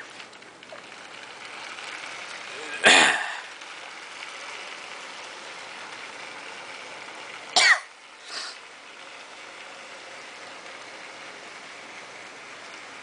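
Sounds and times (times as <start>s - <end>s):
toy train whirring and rattling: 0.0s - 13.0s
person coughing: 2.8s - 3.4s.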